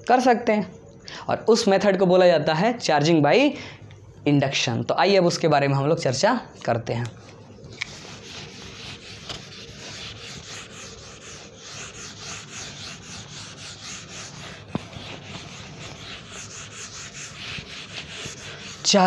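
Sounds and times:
writing tool scratching: 0:07.7 - 0:19.0.

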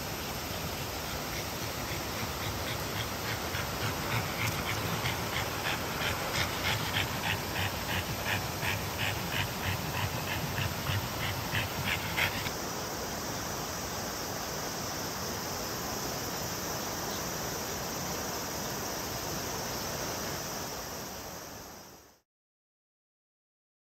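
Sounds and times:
mountain stream rushing: 0:00.0 - 0:21.8
high insect drone: 0:00.0 - 0:22.2
dog panting: 0:00.8 - 0:12.5.

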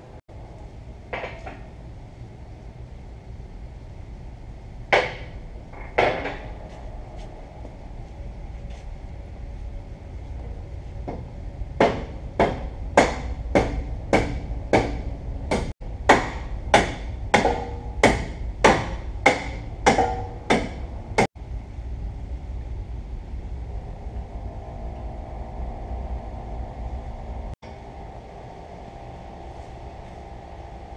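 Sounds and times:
steady low hum: 0:00.0 - 0:30.9
hammer striking steel: 0:11.8 - 0:21.3.

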